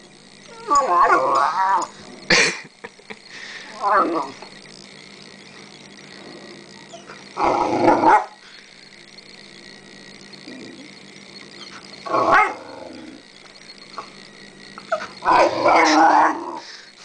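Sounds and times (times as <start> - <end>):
puppy barking and growling: 6.5 - 8.4, 11.6 - 13.2, 14.8 - 16.7.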